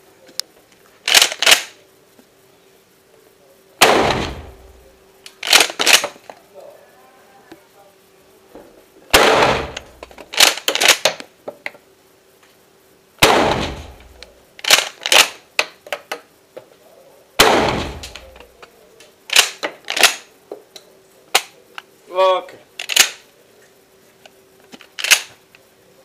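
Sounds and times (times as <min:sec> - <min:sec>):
shotgun pump racking clicks: 0:01.1 - 0:01.7, 0:05.4 - 0:06.1, 0:14.6 - 0:15.4, 0:22.8 - 0:23.2, 0:24.8 - 0:25.3
shotgun shots echoing: 0:03.8 - 0:04.8, 0:09.1 - 0:10.1, 0:13.2 - 0:14.2, 0:17.4 - 0:18.4.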